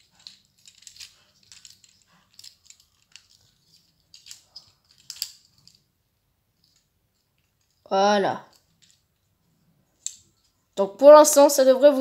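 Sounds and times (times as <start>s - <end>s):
plastic toy parts clicking: 0.0s - 5.8s, 10.0s - 10.5s.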